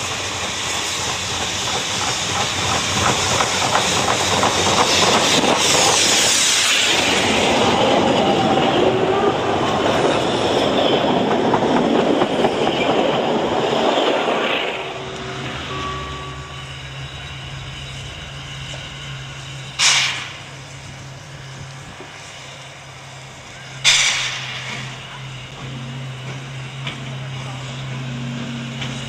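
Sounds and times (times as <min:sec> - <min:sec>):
train wheels clattering on rails: 0:00.0 - 0:29.0.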